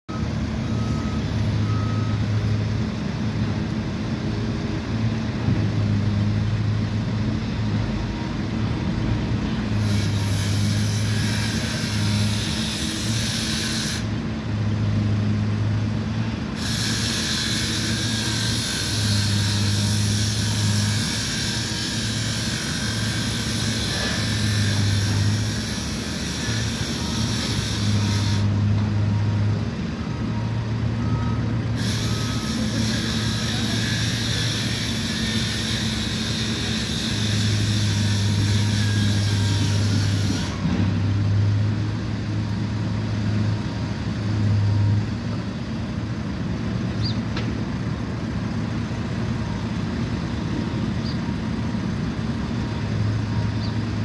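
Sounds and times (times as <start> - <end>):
faint reversing beeps: 0.1 - 2.8, 29.0 - 34.5, 52.8 - 53.8
excavator diesel engine running: 0.1 - 54.0.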